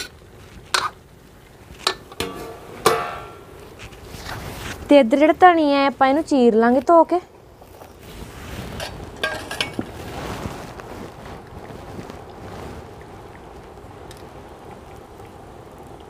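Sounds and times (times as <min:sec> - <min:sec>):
steel utensil clinking: 0:01.8 - 0:04.1, 0:09.2 - 0:09.8.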